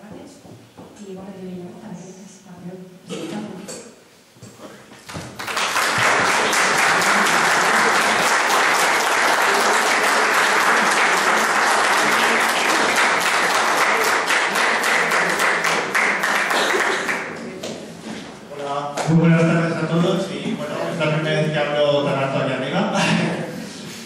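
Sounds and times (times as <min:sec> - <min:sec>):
audience applauding: 0:05.0 - 0:17.5.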